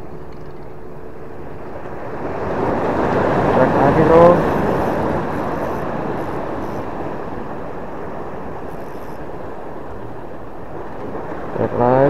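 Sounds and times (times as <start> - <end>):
sea surf: 0.8 - 12.0
wind on microphone: 2.0 - 11.6.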